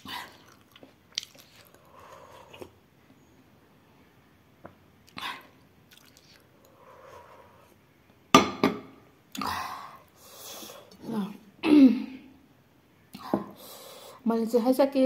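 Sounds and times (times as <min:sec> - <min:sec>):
woman clearing her throat: 0:11.6 - 0:12.2
woman coughing: 0:11.6 - 0:12.2.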